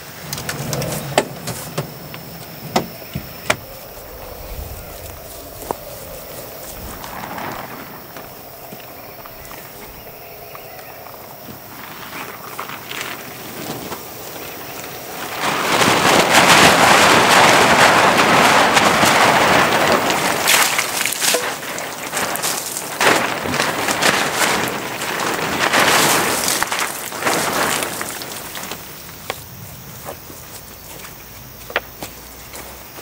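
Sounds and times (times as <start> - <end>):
heavy rain pouring: 0.0 - 29.2
raindrops tapping: 13.6 - 28.8.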